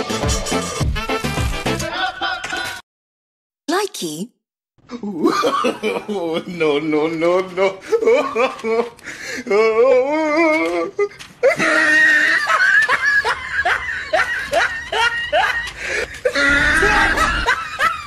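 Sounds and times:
people laughing hard: 0:01.8 - 0:02.8, 0:05.1 - 0:18.0.

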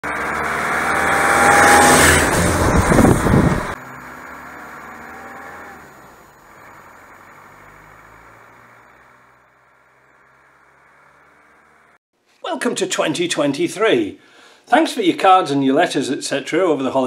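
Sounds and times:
vehicle driving on gravel: 0:00.0 - 0:12.0.

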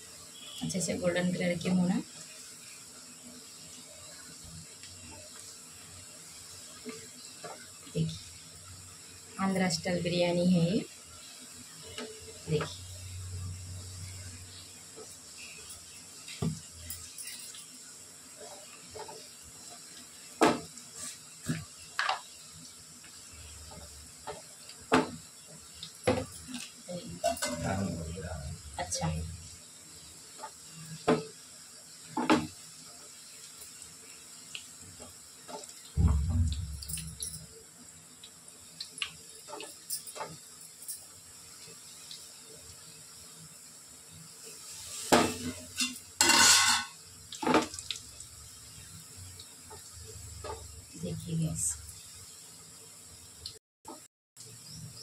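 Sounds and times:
low steady hiss: 0:00.0 - 0:55.0
metal utensil clinking on pot: 0:45.8 - 0:46.9.

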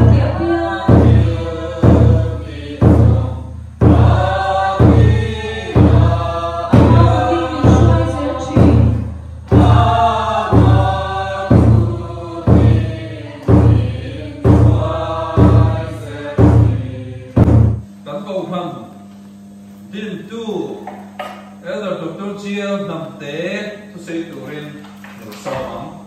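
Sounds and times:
congregation singing a hymn: 0:00.0 - 0:17.7
deep drum beats: 0:00.0 - 0:18.0.

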